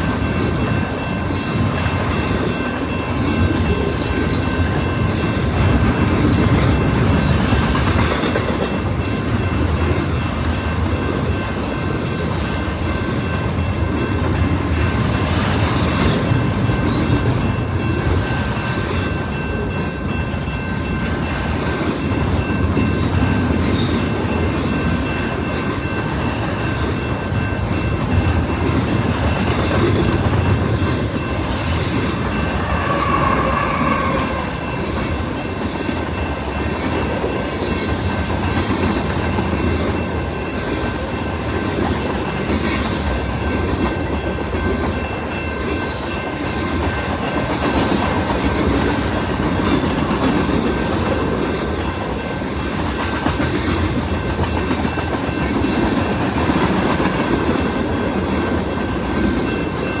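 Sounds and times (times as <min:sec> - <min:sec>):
train wheels rumbling on rail: 0:00.0 - 1:00.0
high squeal: 0:31.8 - 0:34.6.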